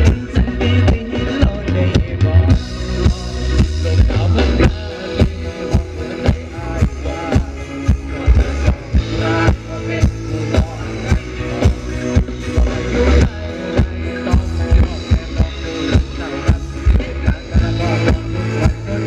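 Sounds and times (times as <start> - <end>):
heavy bass: 0.0 - 19.0
live band dance music: 0.0 - 19.0
steady drum beat: 0.0 - 19.0.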